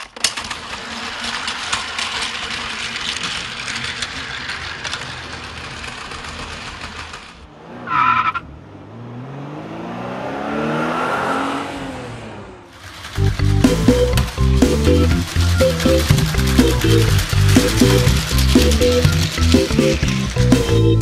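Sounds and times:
toy train motor whirring: 0:00.0 - 0:07.4, 0:12.8 - 0:21.0
tire screech: 0:04.2 - 0:13.2
car engine revving: 0:05.3 - 0:21.0.

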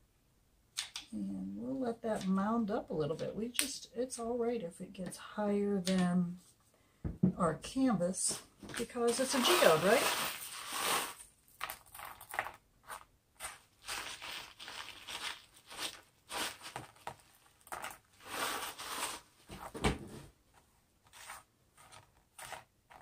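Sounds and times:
plastic bag crinkling: 0:08.8 - 0:19.4
glass pebbles clinking: 0:09.2 - 0:12.6.

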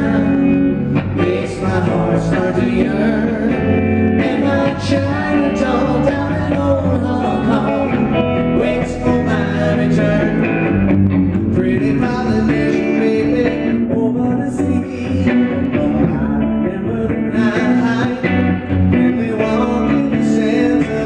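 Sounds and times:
man singing: 0:00.0 - 0:10.8, 0:11.4 - 0:21.0
electric bass: 0:00.0 - 0:21.0
electric guitar: 0:00.0 - 0:21.0.

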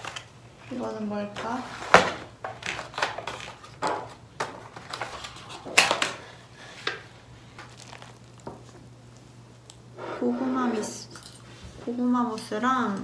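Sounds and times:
packaging rustling and crinkling: 0:07.6 - 0:08.9.

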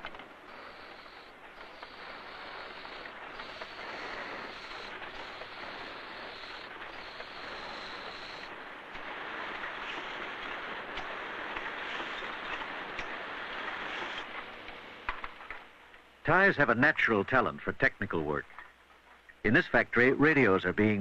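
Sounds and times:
assembly machines running: 0:00.0 - 0:16.7.

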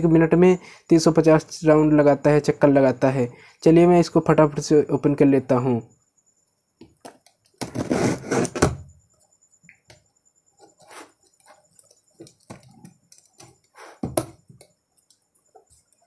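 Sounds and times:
box cutter slitting packing tape: 0:07.6 - 0:08.8
cardboard box scraping and rustling: 0:07.7 - 0:08.8.

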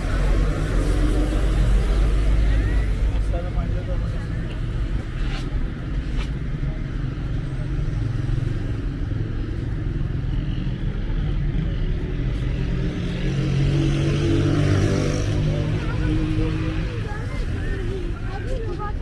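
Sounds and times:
traffic engines rumbling: 0:00.0 - 0:19.0
engine passing close: 0:10.6 - 0:18.8.

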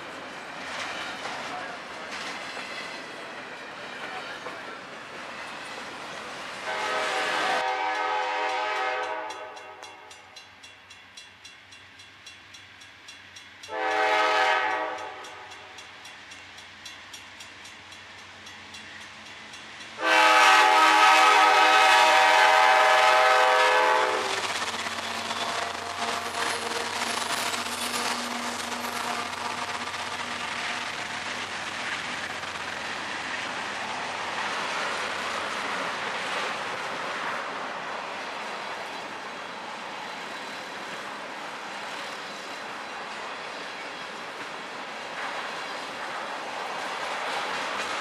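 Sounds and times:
freight train rumbling past: 0:00.0 - 0:48.0
locomotive air horn blasts: 0:06.6 - 0:09.8, 0:13.7 - 0:15.5, 0:20.0 - 0:24.4
crossing bell dinging: 0:08.0 - 0:13.8.

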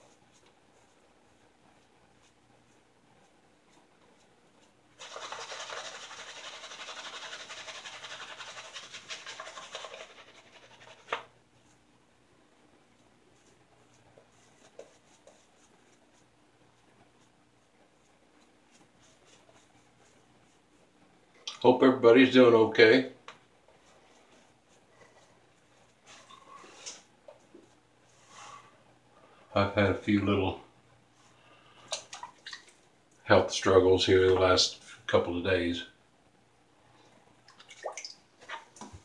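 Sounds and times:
shaving brush scratching on stubble: 0:05.0 - 0:11.3.

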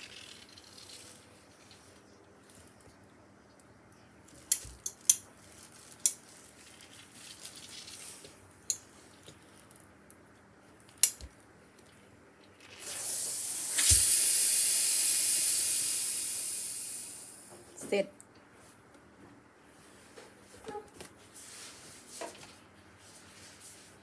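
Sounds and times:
steam iron hissing: 0:12.8 - 0:17.5.

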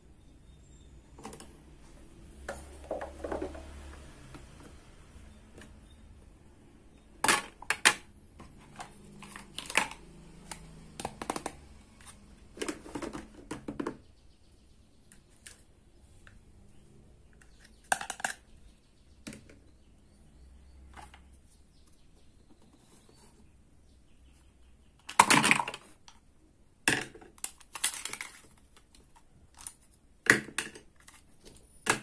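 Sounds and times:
plastic toy pieces clacking: 0:08.8 - 0:13.4, 0:17.4 - 0:18.5, 0:25.0 - 0:26.2, 0:26.9 - 0:32.0.

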